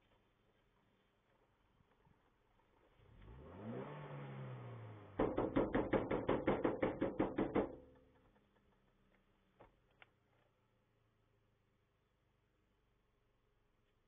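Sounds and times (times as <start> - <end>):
truck engine revving: 3.2 - 5.2.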